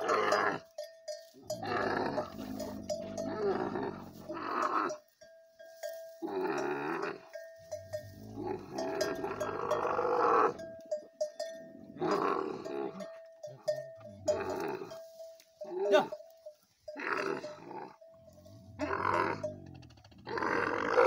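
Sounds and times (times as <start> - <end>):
camel deep calls: 0.0 - 0.7, 1.4 - 5.0, 8.2 - 10.7, 15.6 - 16.2, 17.0 - 21.0
camel bell clinking: 0.0 - 21.0.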